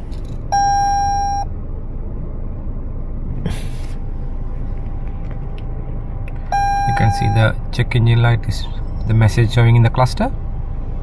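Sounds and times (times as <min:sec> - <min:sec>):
car engine idling: 0:00.0 - 0:11.0
warning chime: 0:06.6 - 0:07.6.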